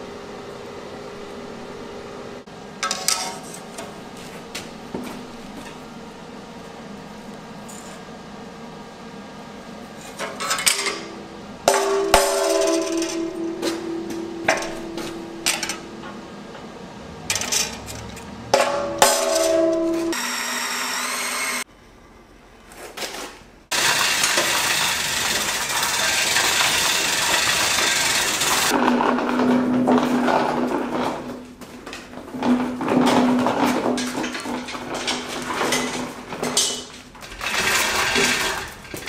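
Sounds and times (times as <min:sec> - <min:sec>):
steel plate ringing: 0:10.6 - 0:16.8, 0:18.6 - 0:21.6
hammer striking punch on steel: 0:11.7 - 0:16.1, 0:18.6 - 0:20.2.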